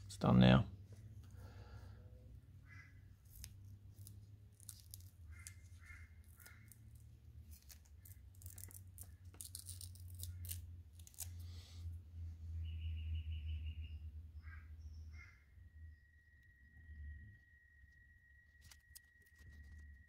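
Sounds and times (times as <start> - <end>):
low steady hum: 0.0 - 20.0
masking tape peeling: 3.2 - 11.6.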